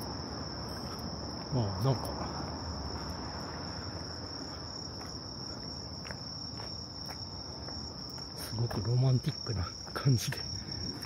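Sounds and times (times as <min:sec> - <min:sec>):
night insects trilling: 0:00.0 - 0:11.0.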